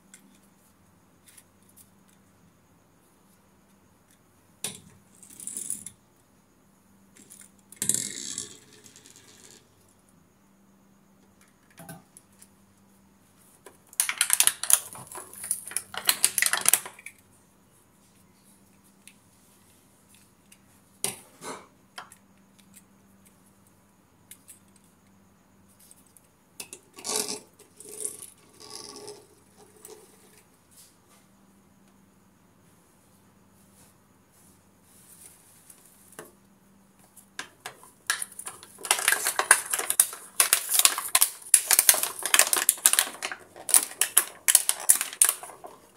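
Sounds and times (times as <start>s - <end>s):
plastic toys clattering: 13.9s - 17.2s, 37.4s - 45.9s.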